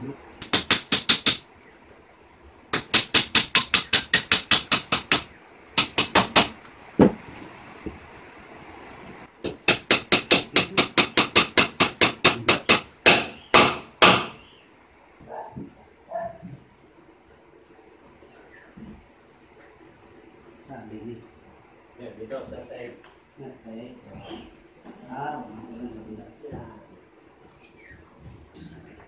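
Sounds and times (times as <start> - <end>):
hammer driving nails into wood: 0.4 - 1.4, 2.7 - 7.2, 9.4 - 14.4.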